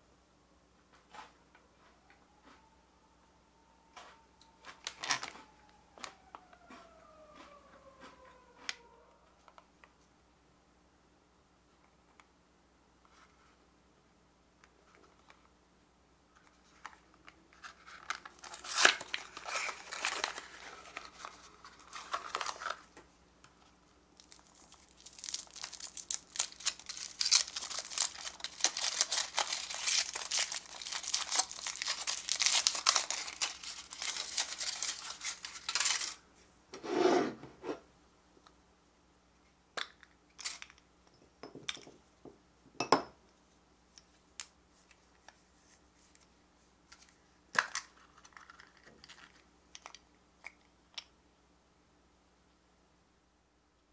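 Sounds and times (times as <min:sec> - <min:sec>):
foil wrapper crinkling: 0:04.8 - 0:05.4, 0:17.6 - 0:23.0, 0:24.2 - 0:36.2
cardboard box tearing: 0:18.4 - 0:20.5.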